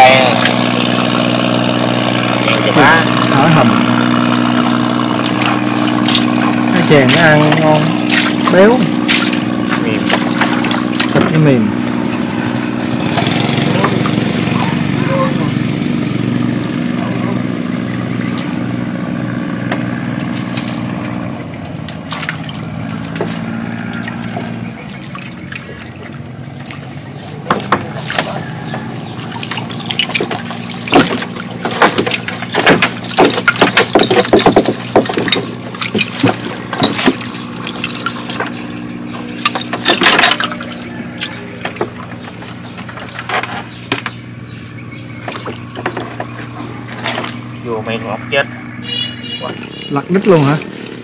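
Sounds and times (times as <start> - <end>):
small engine idling: 0.0 - 51.0
water splashing and sloshing: 0.0 - 51.0
knocks: 29.6 - 37.3.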